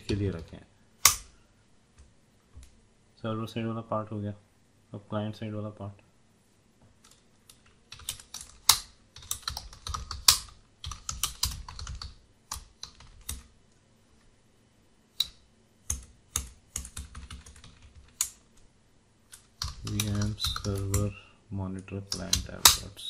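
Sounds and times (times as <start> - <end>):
computer keyboard typing: 7.0 - 13.5, 15.2 - 18.4, 19.3 - 21.1, 22.1 - 22.8.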